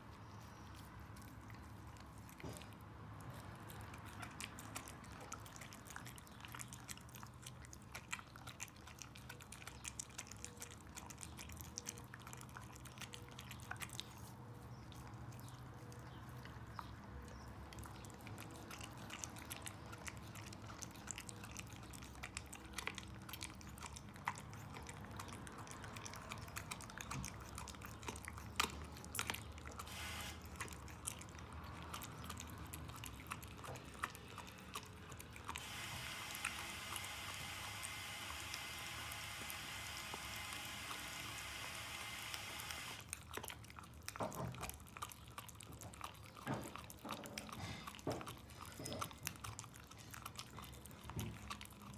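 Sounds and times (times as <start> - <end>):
dog gnawing a bone: 0.0 - 51.9.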